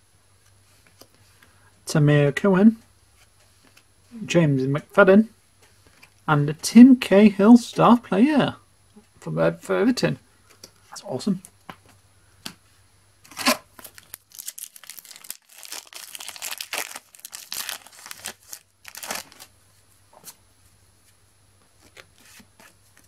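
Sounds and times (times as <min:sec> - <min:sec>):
foil packet tearing and crinkling: 0:13.3 - 0:19.5
sharp foil crackle: 0:13.4 - 0:19.5.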